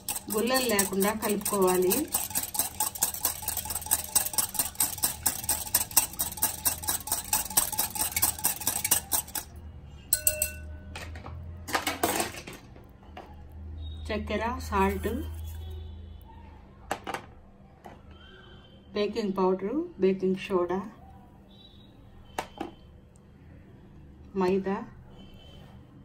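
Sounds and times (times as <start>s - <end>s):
whisk scraping a glass bowl: 0.0s - 9.5s, 14.8s - 15.8s.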